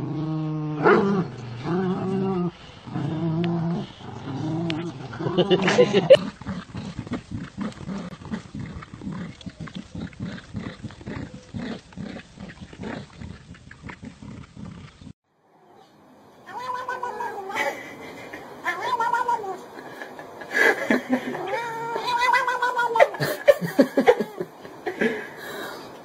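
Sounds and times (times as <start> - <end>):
dogs growling: 0.0 - 15.2
cat yowling: 16.4 - 17.6, 18.6 - 19.7, 21.3 - 23.2.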